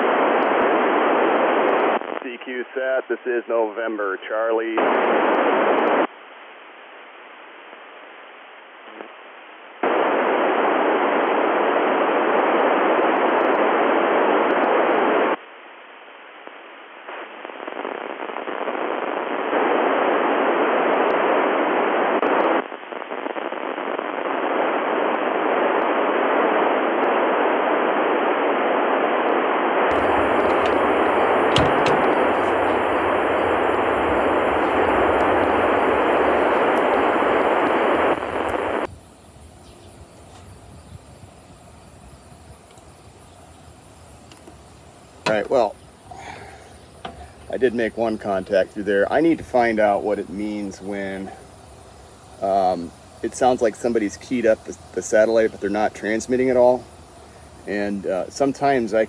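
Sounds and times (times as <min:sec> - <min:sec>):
radio static hiss: 0:00.0 - 0:59.0
low hum: 0:29.9 - 0:58.3.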